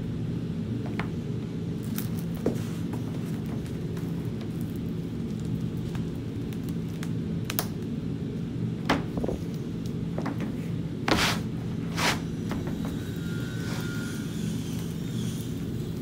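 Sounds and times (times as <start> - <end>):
steady low rumble: 0.0 - 12.7
board lifting and dropping: 11.1 - 12.9.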